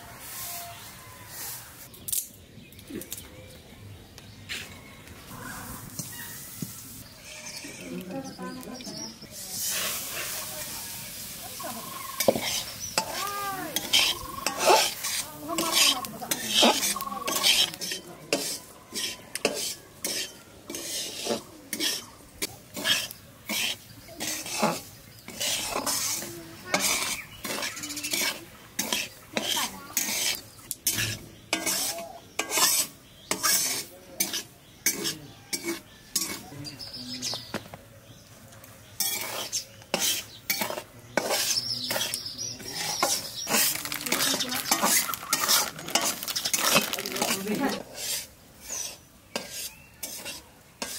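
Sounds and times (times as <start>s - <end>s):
metal spatula scraping a pan: 9.4s - 36.5s, 39.0s - 50.9s.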